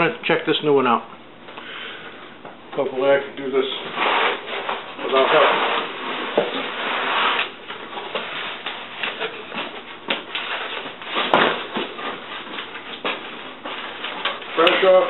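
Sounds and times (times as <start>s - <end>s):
cardboard flaps scraping and rustling: 3.7s - 15.0s
packing rubbing against box: 3.8s - 15.0s.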